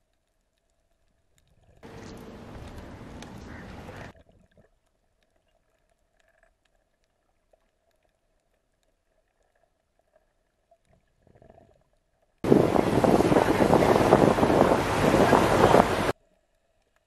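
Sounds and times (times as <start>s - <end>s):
wind on the microphone: 12.4s - 16.1s.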